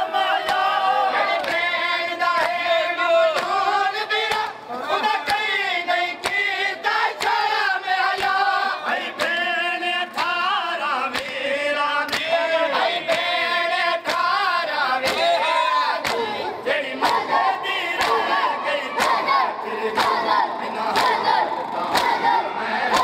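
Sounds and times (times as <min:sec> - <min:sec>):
men chanting together: 0:00.0 - 0:23.0
hands slapping chests: 0:12.1 - 0:12.3, 0:16.0 - 0:16.4, 0:20.0 - 0:20.2, 0:21.9 - 0:22.2.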